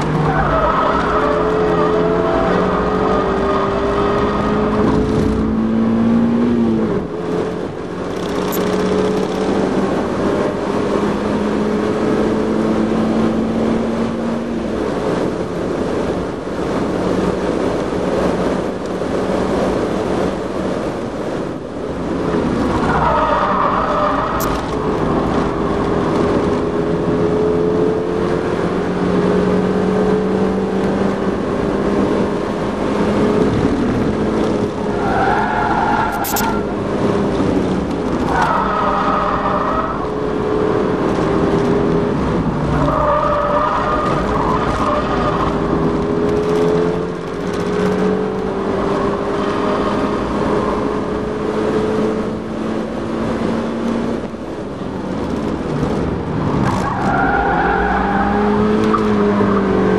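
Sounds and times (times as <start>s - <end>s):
car engine revving: 0.0s - 17.8s, 22.3s - 59.9s
wind rush: 1.2s - 29.9s.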